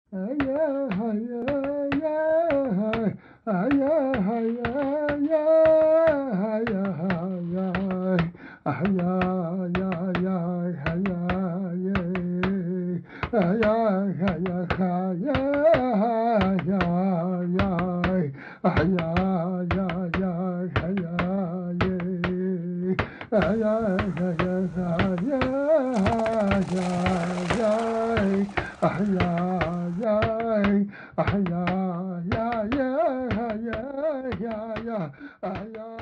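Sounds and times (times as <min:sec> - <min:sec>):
sharp taps or beats: 0:23.0 - 0:36.0.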